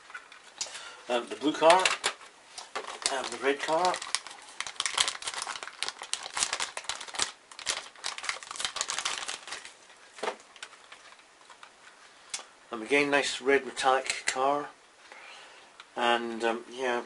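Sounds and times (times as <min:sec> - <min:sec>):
plastic packaging crinkling: 0:01.4 - 0:11.7.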